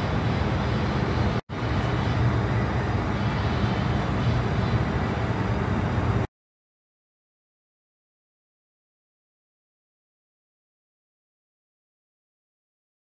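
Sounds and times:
airport apron rumble: 0.0s - 6.3s.

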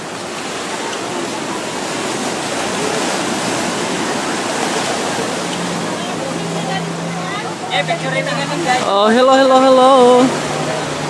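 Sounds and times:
small waves washing on beach: 0.0s - 11.0s.

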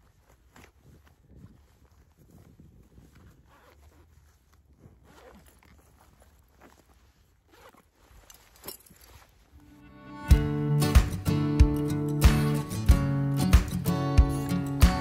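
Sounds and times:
backpack zipper closing: 3.3s - 6.7s, 7.4s - 9.2s.

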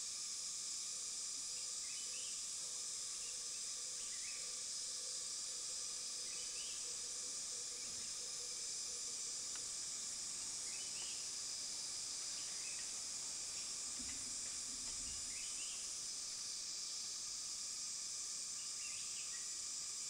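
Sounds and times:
insects droning: 0.0s - 20.0s.

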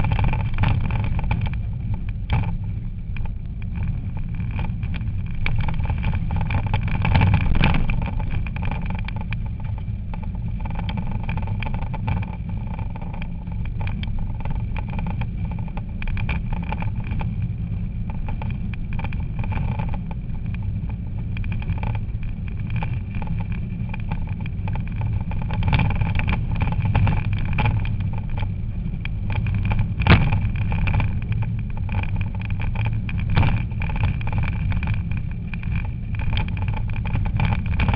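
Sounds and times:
steady high whine: 0.0s - 37.9s.

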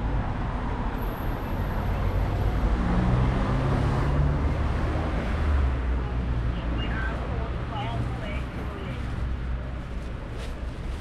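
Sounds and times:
passing vehicles: 0.0s - 11.0s.

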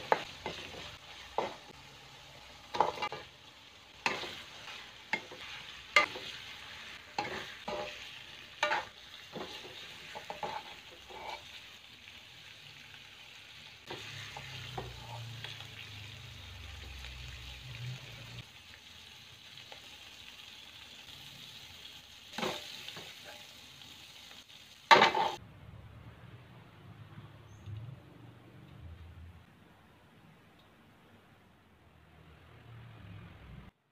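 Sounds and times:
food sizzling in wok: 0.0s - 25.4s
metal spoon scraping pan: 7.1s - 11.6s.

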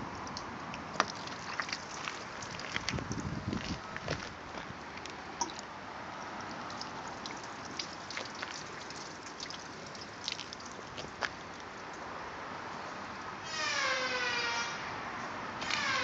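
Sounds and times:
water drips and splashes: 0.0s - 12.2s
water running off car panel: 0.8s - 3.4s, 5.4s - 11.6s.

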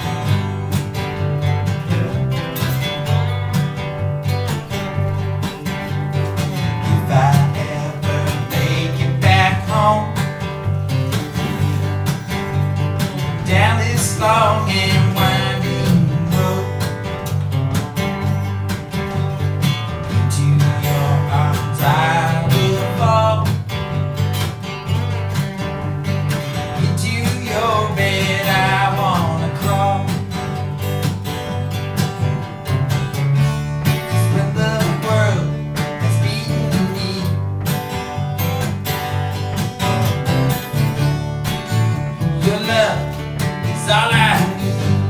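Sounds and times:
acoustic guitars strumming: 0.0s - 45.0s
person singing: 6.8s - 10.3s, 13.4s - 16.9s, 20.2s - 23.6s, 26.8s - 30.3s, 34.1s - 37.4s, 42.4s - 45.0s.

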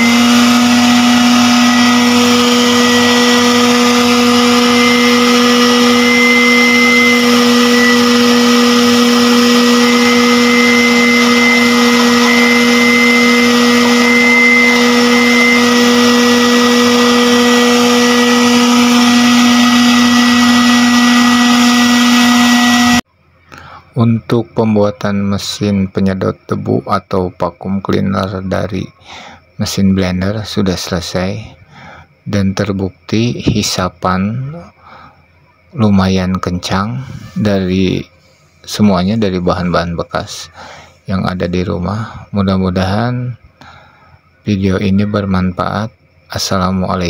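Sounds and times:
vacuum cleaner motor whine: 0.0s - 23.1s.

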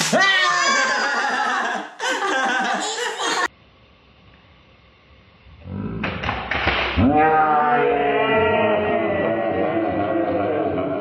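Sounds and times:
children laughing: 0.5s - 3.5s.

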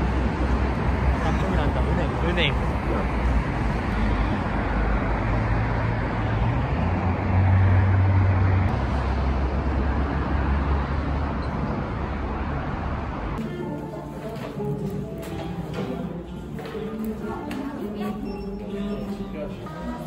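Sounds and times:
passing vehicle engine hum: 0.0s - 13.4s
road traffic: 0.0s - 20.0s.

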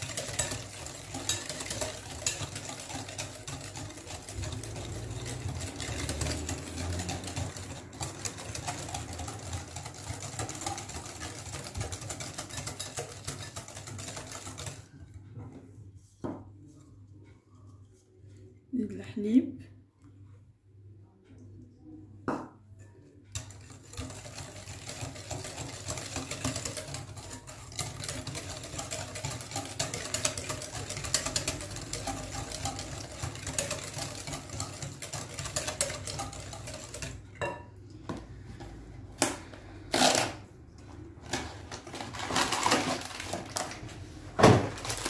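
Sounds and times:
whisk rattling against glass bowl: 0.0s - 15.2s, 23.0s - 37.7s.

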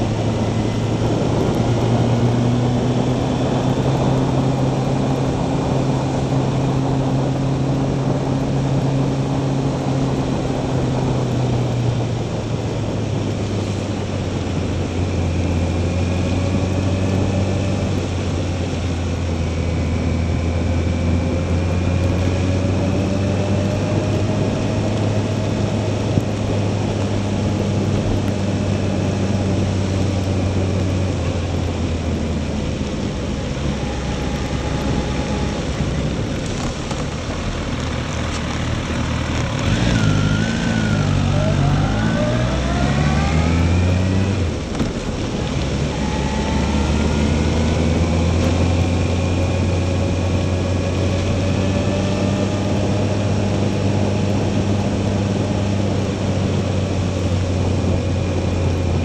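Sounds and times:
motorcycle engine running: 0.0s - 59.0s
wind: 0.0s - 59.0s.

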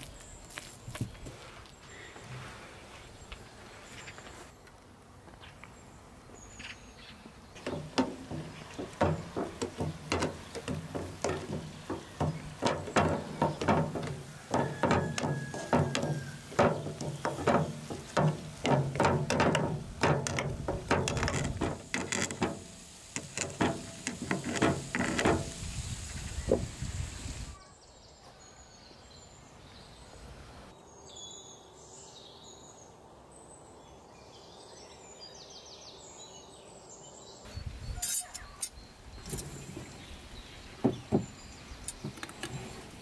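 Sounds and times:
glass jar knocking on pan: 7.7s - 22.6s.

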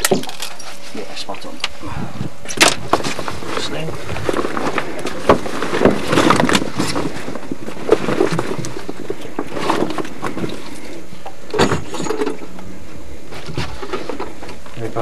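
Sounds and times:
steady background hiss: 0.0s - 15.0s
knocks and rustles of fish handling: 2.5s - 12.7s.

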